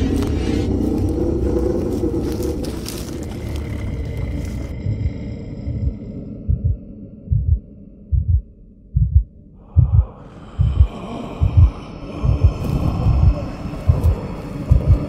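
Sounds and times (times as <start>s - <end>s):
low drone: 0.0s - 15.0s
heartbeat double thump: 6.5s - 8.4s, 9.0s - 15.0s.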